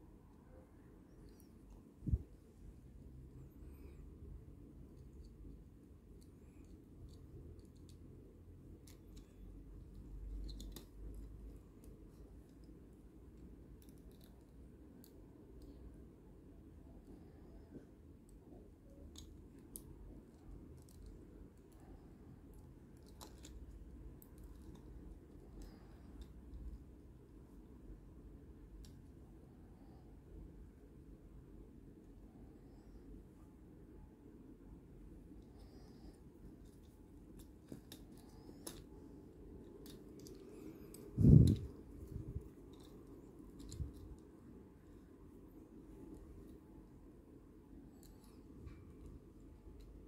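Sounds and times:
room hum: 0.0s - 50.0s
plastic toy parts clicking: 22.9s - 24.8s, 36.6s - 38.9s, 39.5s - 44.2s.

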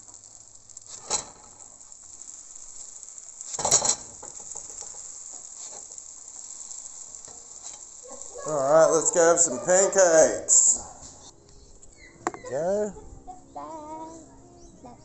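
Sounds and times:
batter sizzling in frying pan: 0.0s - 12.6s
spatula scraping a pan: 0.2s - 9.5s.

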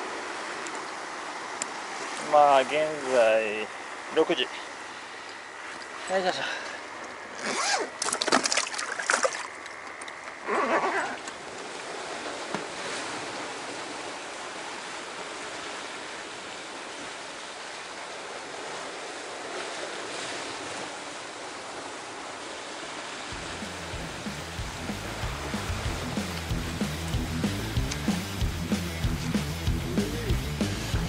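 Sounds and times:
surf washing over rocks: 0.0s - 31.0s
splashing and handling noise: 6.9s - 14.1s.

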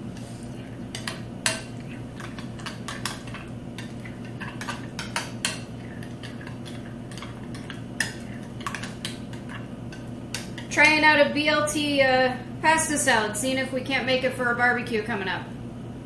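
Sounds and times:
spoon scraping a bowl: 0.2s - 10.7s.

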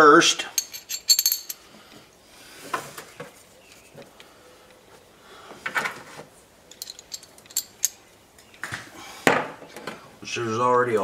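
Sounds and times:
metal fittings clinking: 0.4s - 1.6s, 6.7s - 8.0s.

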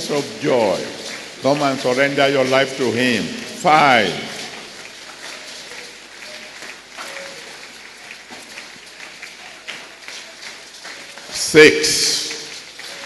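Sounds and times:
crowd applauding: 0.0s - 13.0s.

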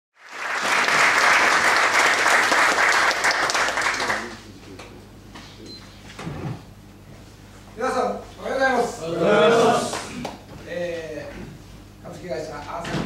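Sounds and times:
audience applauding: 0.2s - 4.4s.

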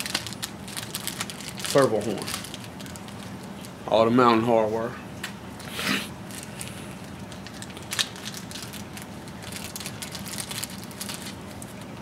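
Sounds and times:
plastic bag crinkling: 0.0s - 3.8s, 6.2s - 11.9s.

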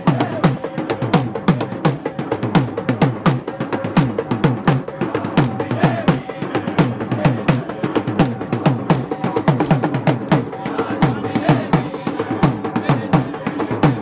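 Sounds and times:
crowd voices: 3.4s - 14.0s.

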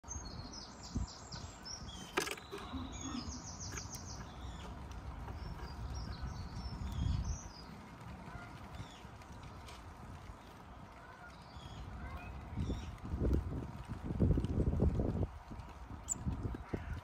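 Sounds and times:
songbirds chirping and trilling: 0.0s - 17.0s.

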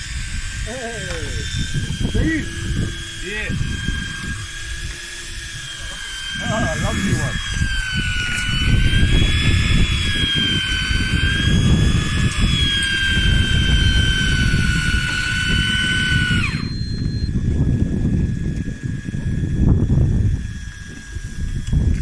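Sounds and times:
low rumble: 0.0s - 15.0s
fishing reel motor whining: 0.0s - 22.0s.

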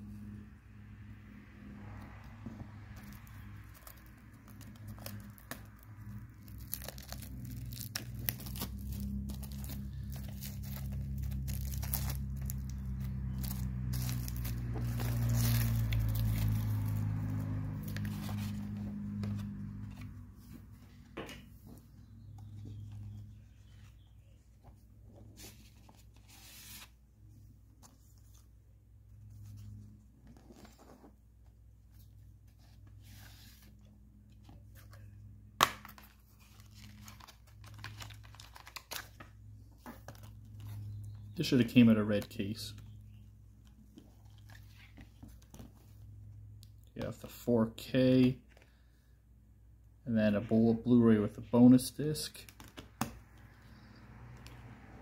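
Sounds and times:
plastic shrink wrap crinkling: 3.7s - 18.5s.

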